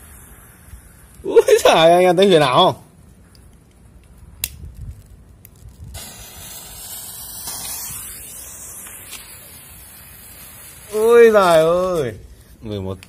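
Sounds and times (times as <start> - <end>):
fuse hissing: 0.0 - 2.2, 6.0 - 12.6
sharp clicks: 3.3 - 4.6.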